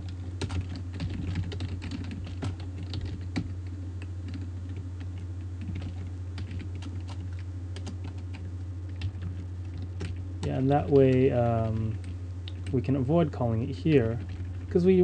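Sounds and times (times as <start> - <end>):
computer keyboard typing: 0.0 - 3.6, 4.2 - 12.9, 14.0 - 14.7
steady low hum: 0.0 - 15.0.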